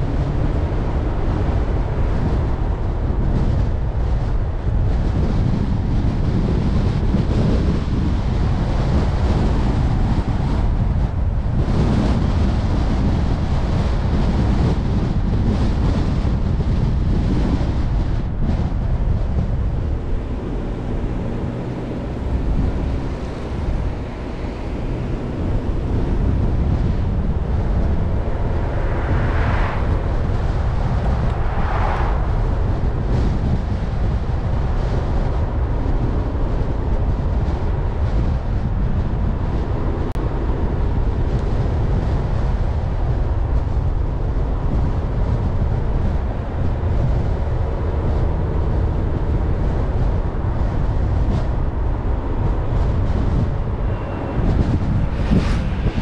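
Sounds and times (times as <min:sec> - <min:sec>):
car tyres and engine rumbling: 0:00.0 - 0:56.0
wind noise: 0:00.0 - 0:56.0
brief whooshes: 0:28.4 - 0:32.6, 0:53.8 - 0:56.0.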